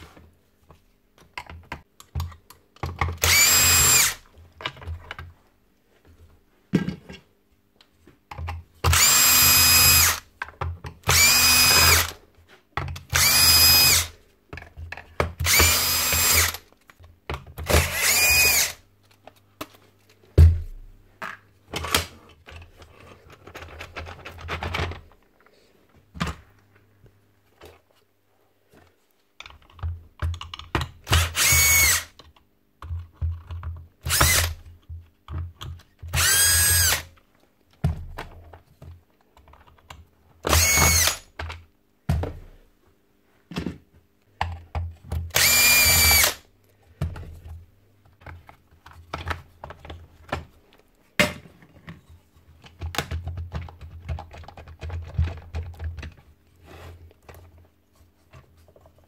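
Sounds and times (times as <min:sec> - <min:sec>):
drill-driver whirring: 0:03.2 - 0:04.2, 0:08.9 - 0:10.2, 0:11.1 - 0:12.2, 0:13.1 - 0:14.2, 0:15.4 - 0:16.6, 0:17.6 - 0:18.8, 0:31.1 - 0:32.1, 0:34.0 - 0:34.6, 0:36.1 - 0:37.1, 0:40.4 - 0:41.3, 0:45.3 - 0:46.4.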